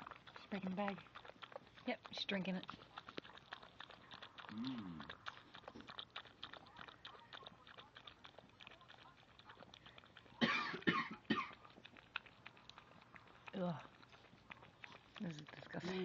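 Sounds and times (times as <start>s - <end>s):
dog licking wetly: 0.0s - 16.0s.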